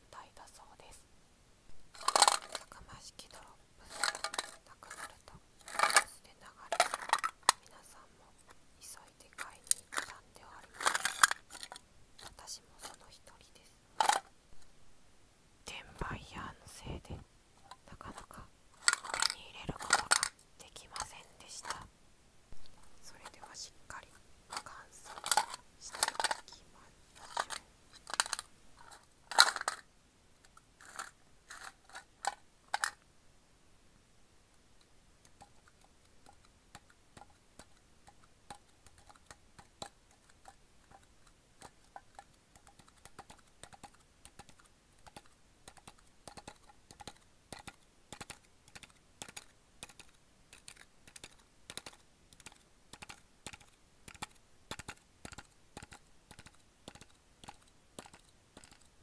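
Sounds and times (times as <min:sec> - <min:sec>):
metal tin clicking and rattling: 0:02.0 - 0:02.7, 0:03.9 - 0:06.1, 0:06.7 - 0:07.6, 0:09.6 - 0:12.4, 0:14.0 - 0:14.3, 0:18.8 - 0:20.4, 0:24.5 - 0:26.6, 0:27.2 - 0:29.9, 0:30.8 - 0:33.0, 0:35.2 - 0:58.9.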